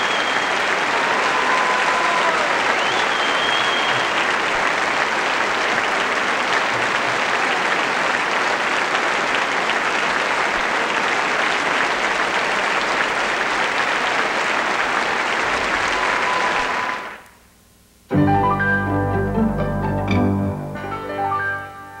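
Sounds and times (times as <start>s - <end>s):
audience applauding: 0.0s - 17.3s.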